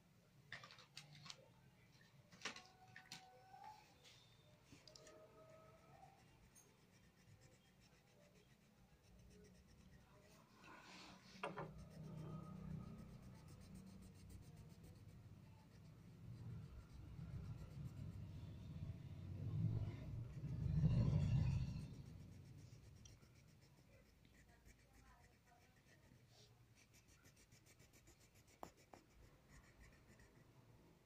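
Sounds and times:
crayon scratching on paper: 0:04.8 - 0:18.6, 0:21.5 - 0:30.6.

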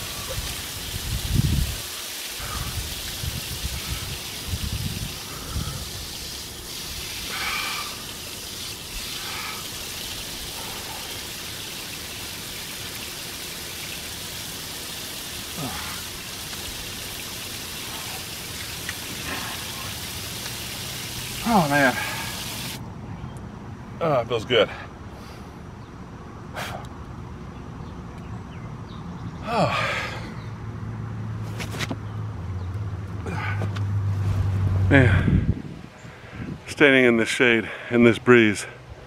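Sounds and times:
water spattering on ground: 0:00.0 - 0:22.8.

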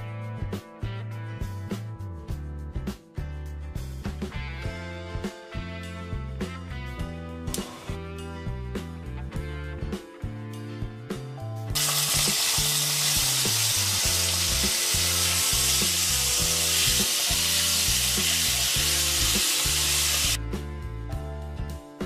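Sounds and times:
hot oil sizzling in frying pan: 0:11.8 - 0:20.4.

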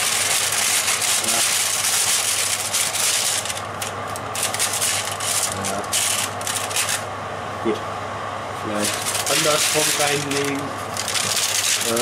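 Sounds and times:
baking paper rustling: 0:00.0 - 0:07.1, 0:08.8 - 0:12.0
oven hum: 0:00.0 - 0:12.0.

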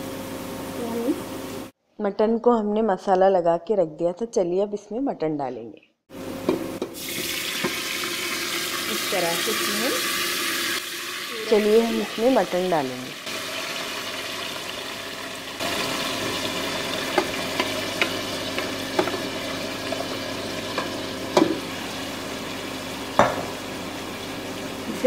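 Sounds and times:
meat frying in hot oil: 0:06.8 - 0:25.0
knocks against metal pot: 0:17.1 - 0:19.3, 0:20.8 - 0:21.6, 0:23.2 - 0:23.6.

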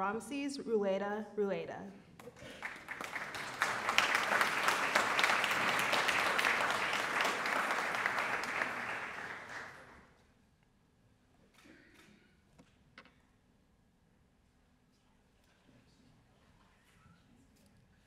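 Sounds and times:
audience applauding: 0:02.4 - 0:10.1.

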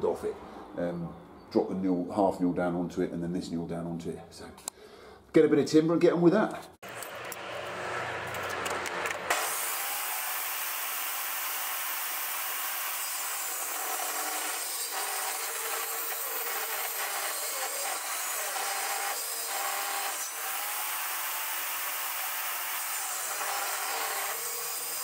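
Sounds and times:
table saw ripping timber: 0:06.8 - 0:25.0.

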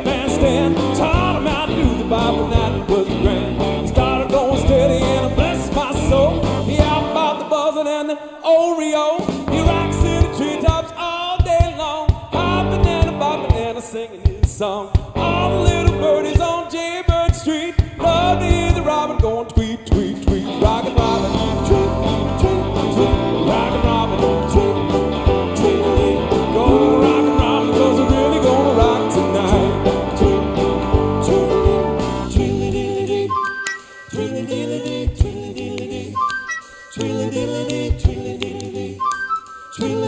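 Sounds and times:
live rock band playing: 0:00.0 - 0:07.4, 0:09.2 - 0:10.8, 0:12.3 - 0:13.8, 0:18.0 - 0:32.6
lead singer singing: 0:00.0 - 0:36.3, 0:36.9 - 0:40.0.

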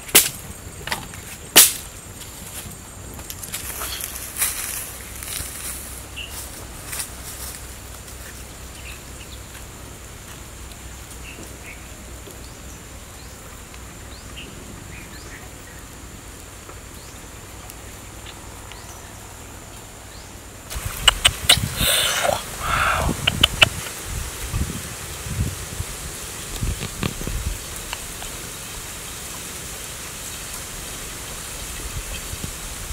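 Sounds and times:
faint chirps: 0:20.1 - 0:23.8.

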